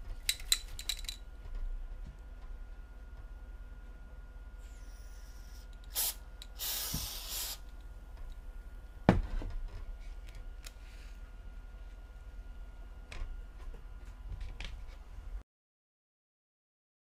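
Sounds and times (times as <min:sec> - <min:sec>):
aerosol can hissing: 0:04.8 - 0:07.7.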